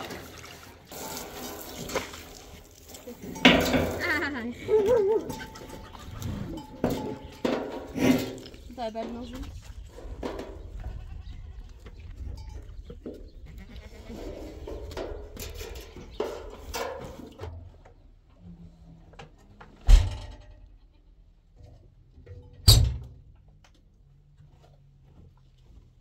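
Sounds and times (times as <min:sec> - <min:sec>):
goats and sheep bleating: 0:03.4 - 0:07.4, 0:10.7 - 0:11.8, 0:13.4 - 0:14.7.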